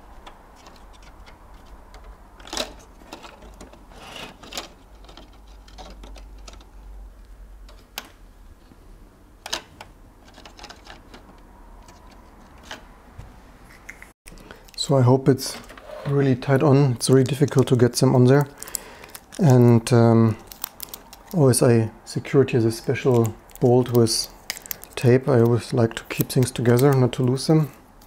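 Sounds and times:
cable connectors clicking: 23.1s - 27.4s.

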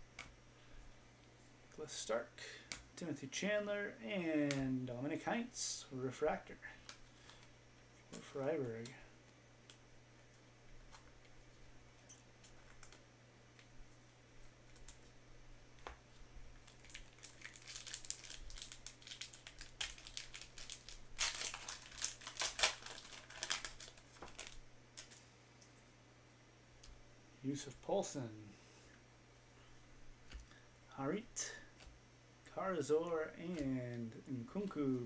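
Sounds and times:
foil wrapper crackling and tearing: 16.6s - 25.2s.

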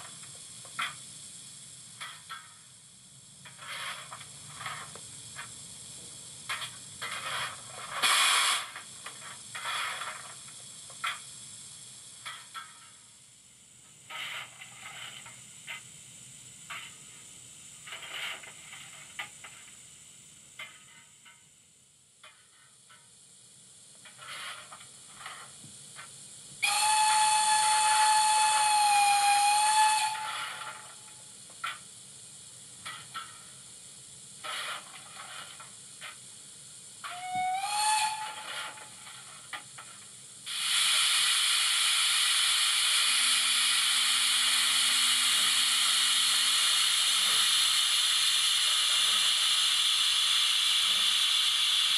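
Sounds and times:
steam hissing and clanking: 0.0s - 51.9s
steam whistle blast: 26.6s - 31.0s, 37.0s - 39.1s, 40.5s - 51.9s.

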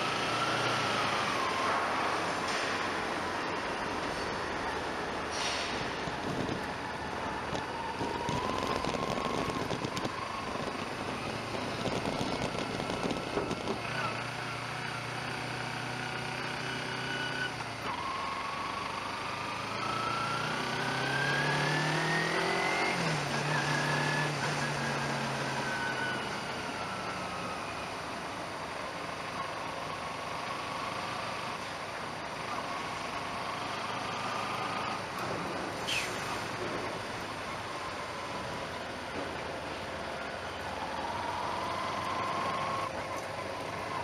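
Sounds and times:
vehicle engine accelerating: 0.0s - 28.2s, 32.4s - 44.0s
road and wind noise: 0.0s - 44.0s.

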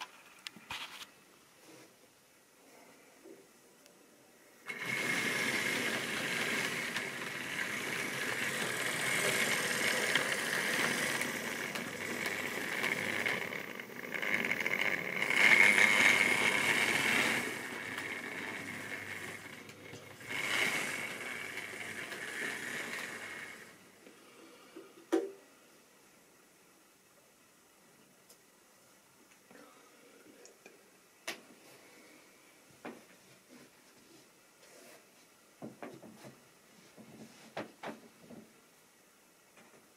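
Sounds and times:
steady high whine: 3.6s - 27.0s
model train wheels rattling: 4.7s - 23.8s.

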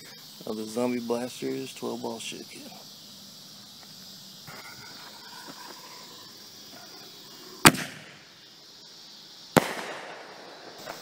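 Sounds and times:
firework mortar boom: 7.6s - 8.3s, 9.6s - 11.0s
echo of boom: 9.6s - 11.0s.

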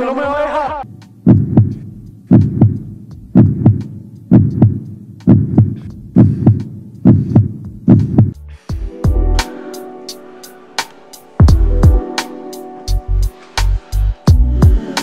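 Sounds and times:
heartbeat thumps: 1.2s - 9.3s, 11.4s - 12.1s, 14.3s - 14.8s.

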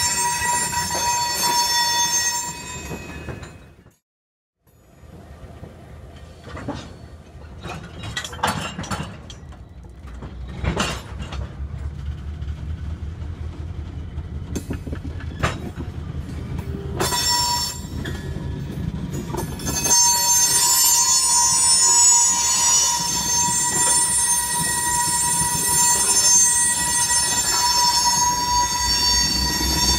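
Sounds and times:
steel wheel squeal: 0.0s - 3.8s, 16.4s - 29.9s
train cars rumbling on rails: 4.8s - 29.9s.

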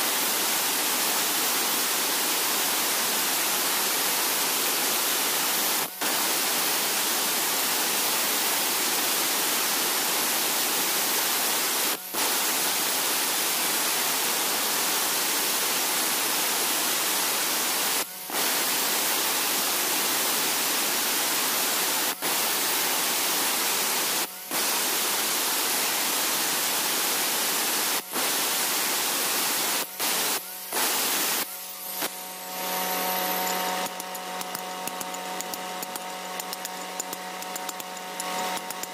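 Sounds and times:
angle grinder grinding stone: 31.5s - 38.9s.

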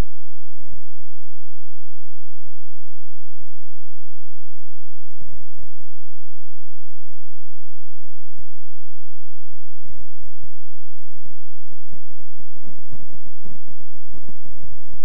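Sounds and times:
crackling clicks: 9.9s - 15.0s.

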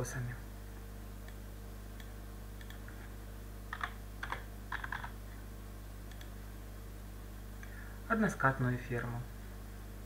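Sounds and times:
low electrical hum: 0.0s - 10.0s
keyboard keystrokes: 2.0s - 2.8s, 3.7s - 5.1s.

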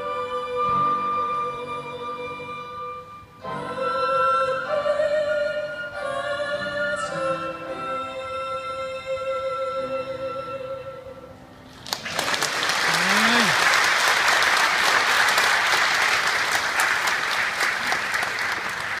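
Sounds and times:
woman singing: 0.0s - 2.9s, 3.5s - 11.2s
crowd applause: 11.8s - 19.0s
person calling out: 12.9s - 13.6s.

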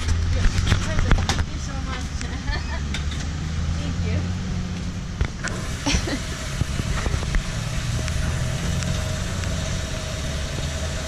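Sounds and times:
fuel pump humming: 0.0s - 11.0s
thin steady whine: 3.5s - 11.0s.

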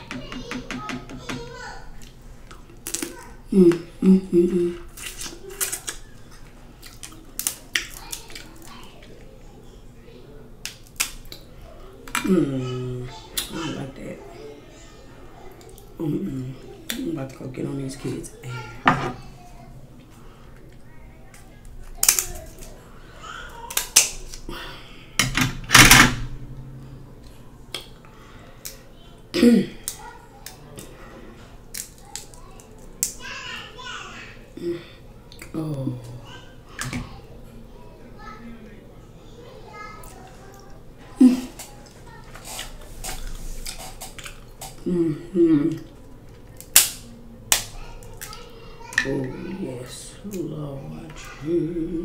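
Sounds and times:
crab shell cracking: 2.0s - 3.2s, 6.8s - 8.8s, 10.6s - 11.5s, 21.3s - 22.8s, 23.7s - 24.5s, 31.7s - 33.2s, 46.3s - 48.4s
woman humming mmm while eating: 3.5s - 4.9s.

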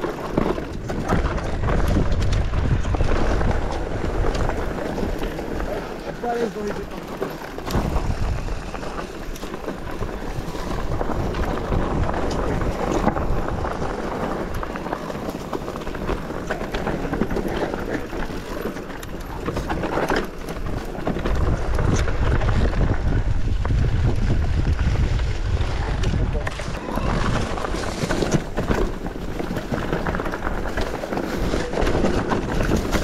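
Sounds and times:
bike rattling: 0.0s - 33.0s
tyres rolling over loose stones: 0.0s - 33.0s
wind buffeting microphone: 0.0s - 33.0s.

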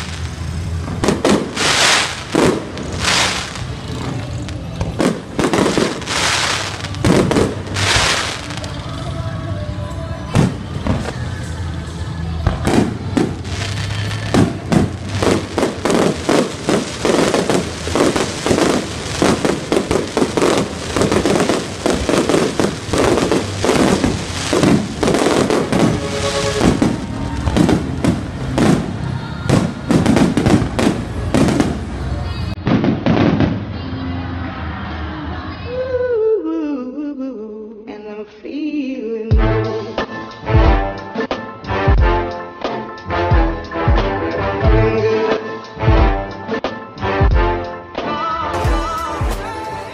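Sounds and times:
fireworks bangs and crackles: 0.0s - 9.2s, 10.2s - 11.6s, 12.4s - 33.8s
music playing: 0.0s - 35.9s, 39.3s - 49.9s.

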